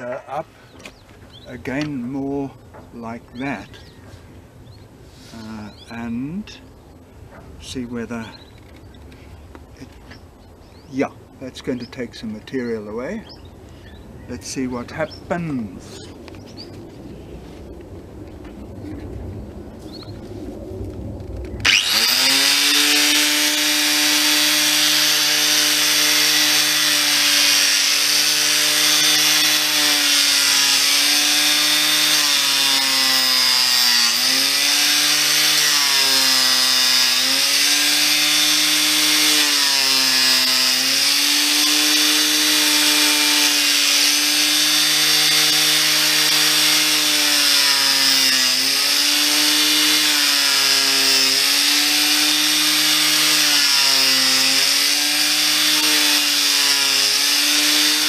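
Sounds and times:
angle grinder cutting wood: 21.6 - 58.0.

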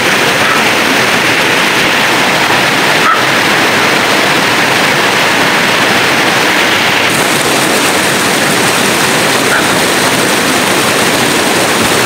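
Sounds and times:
river water over stones: 0.0 - 12.0
dog barking: 0.4 - 0.7, 3.0 - 3.3, 9.4 - 9.8.

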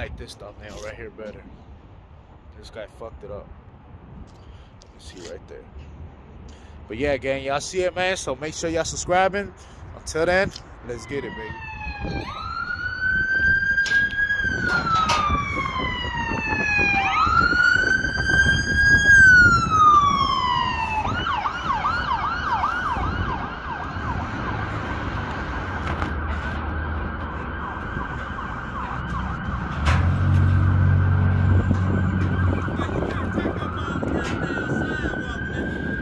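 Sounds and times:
emergency vehicle siren: 10.8 - 36.0.

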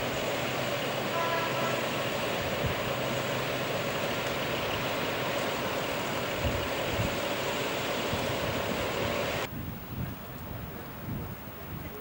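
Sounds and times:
diesel railcar engine hum: 0.0 - 9.5.

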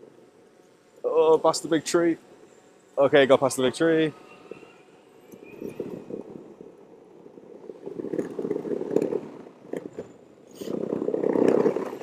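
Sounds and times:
skateboard wheels rolling on rough ground: 5.4 - 12.0.

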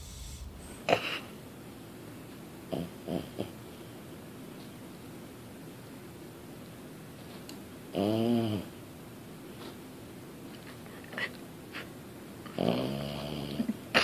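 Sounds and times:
puppy snoring: 7.9 - 8.7, 12.5 - 13.8.

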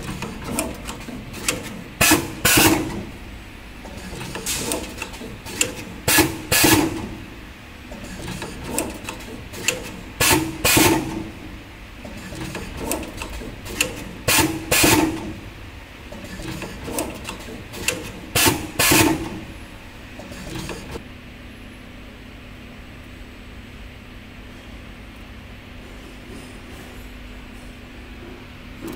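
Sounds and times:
machine mechanical clacks: 0.0 - 3.2, 3.8 - 11.4, 12.0 - 15.5, 16.1 - 21.0
light machine clicks: 3.9 - 7.2, 8.0 - 11.2, 12.1 - 15.4, 16.1 - 19.4.

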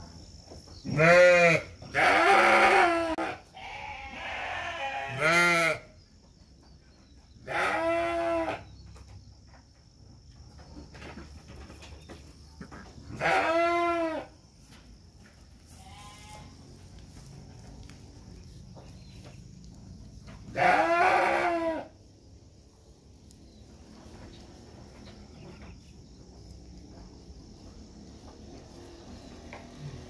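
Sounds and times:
sheep bleating: 0.9 - 5.9, 7.4 - 8.6, 13.1 - 14.3, 20.5 - 21.9.

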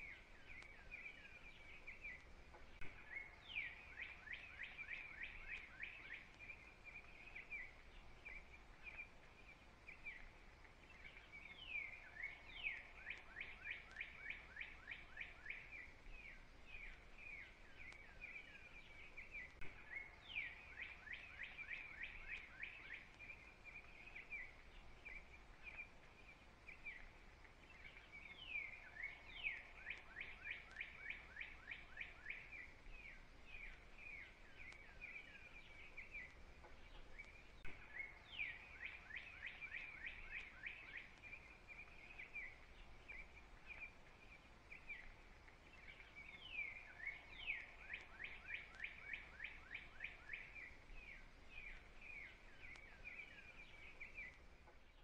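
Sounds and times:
soft bird chirping: 0.0 - 55.0
songbird singing: 0.0 - 55.0.

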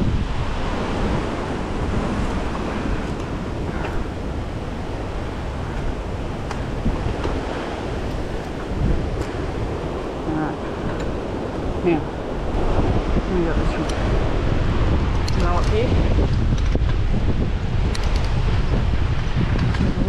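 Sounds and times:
wind buffeting microphone: 0.0 - 20.0
bike clicks and rattles: 15.2 - 17.1, 17.8 - 18.5.

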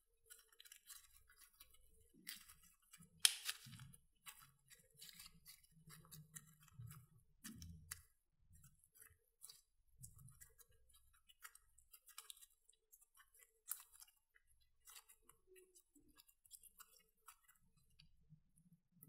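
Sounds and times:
sticky slime clicks and crackles: 0.2 - 17.9
sharp slime pop: 3.2 - 3.8.

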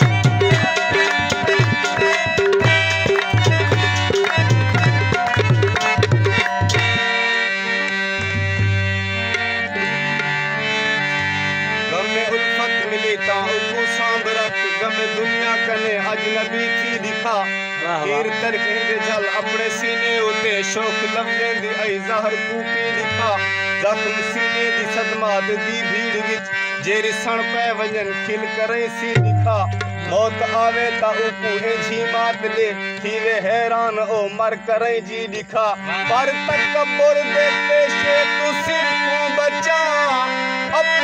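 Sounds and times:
harmonium melody: 0.0 - 41.0
wordless singing: 11.9 - 41.0.

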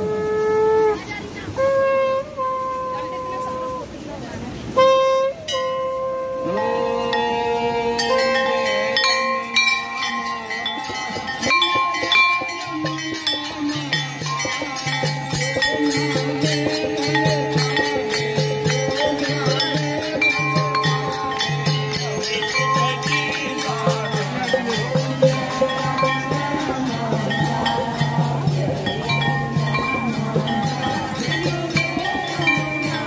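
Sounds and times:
held melody notes: 0.0 - 33.0
rapid bell strokes: 5.4 - 33.0
drum beat: 9.4 - 33.0.

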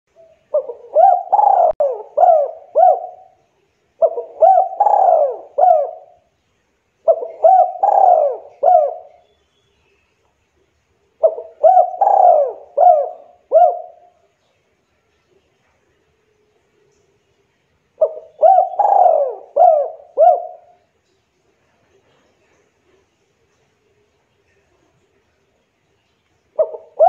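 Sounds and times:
dove cooing: 0.2 - 3.4, 4.0 - 6.3, 7.0 - 9.2, 11.2 - 14.2, 18.0 - 20.9, 26.6 - 27.0.

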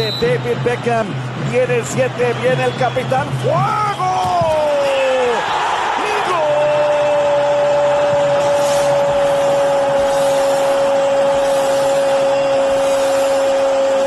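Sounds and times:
commentator shouting goal: 0.0 - 8.1
stadium crowd noise: 0.0 - 14.0.

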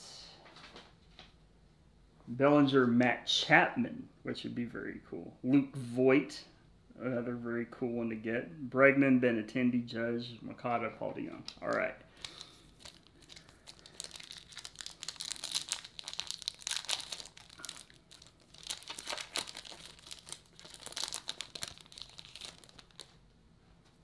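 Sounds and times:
foil wrapper crinkling and tearing: 11.6 - 23.2.

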